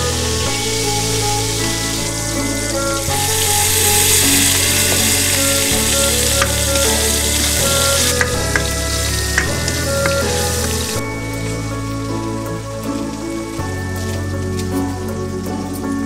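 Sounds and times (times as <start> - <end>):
hot oil sizzling: 0.0 - 15.8
spattering oil pops: 6.2 - 11.0.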